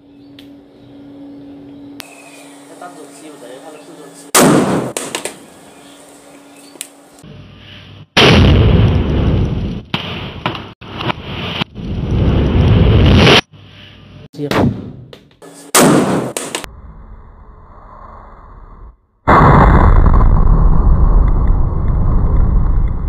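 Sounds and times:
firecracker bang: 0:04.4 - 0:05.4, 0:15.7 - 0:16.7
loud rumbling blast: 0:08.2 - 0:09.8, 0:19.2 - 0:23.0.

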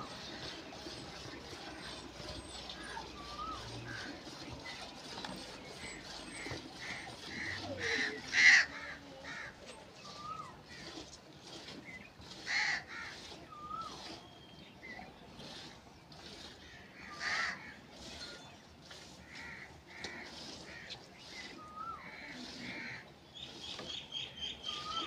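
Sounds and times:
small birds chirping and whistling: 0:02.4 - 0:03.9, 0:10.0 - 0:10.6, 0:13.5 - 0:15.2, 0:21.2 - 0:22.1, 0:23.3 - 0:25.0
crows cawing: 0:17.1 - 0:17.8.

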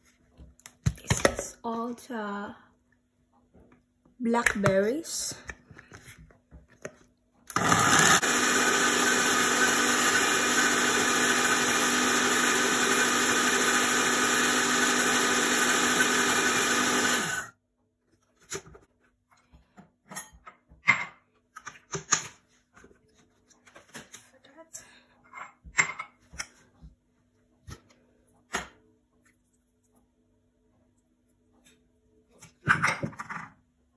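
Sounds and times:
blender pureeing: 0:07.5 - 0:17.5.

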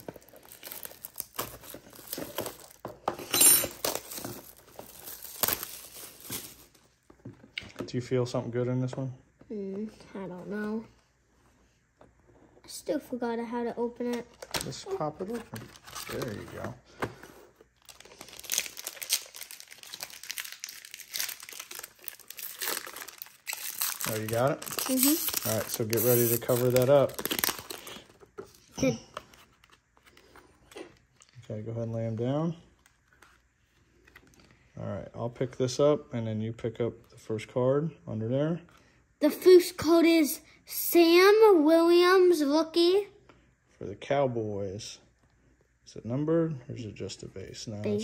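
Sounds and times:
plastic wrap tearing and crinkling: 0:00.0 - 0:02.8, 0:03.7 - 0:06.8, 0:14.4 - 0:16.6, 0:17.8 - 0:28.1.

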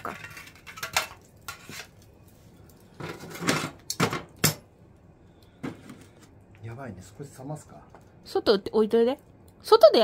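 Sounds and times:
metal stove lid clanking and scraping: 0:03.0 - 0:04.6.

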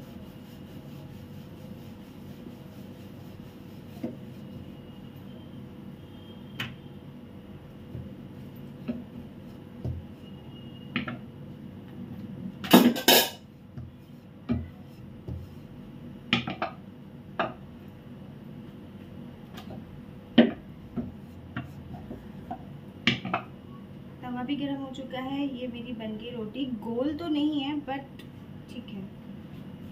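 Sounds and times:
rolling pin knocking on board: 0:07.8 - 0:08.2, 0:09.8 - 0:10.1, 0:12.7 - 0:15.5, 0:16.3 - 0:16.8, 0:20.4 - 0:21.8.

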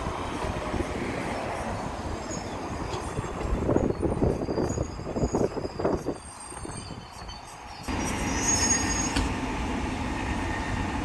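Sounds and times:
train wheels rumbling on rails: 0:00.0 - 0:11.0
faint high squealing: 0:01.6 - 0:09.2.

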